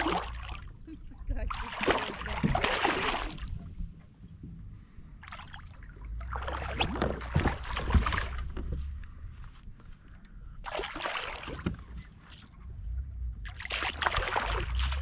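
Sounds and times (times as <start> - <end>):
fish thrashing and splashing: 0.0 - 0.7, 1.4 - 3.6, 5.2 - 8.6, 10.7 - 12.0, 13.5 - 15.0.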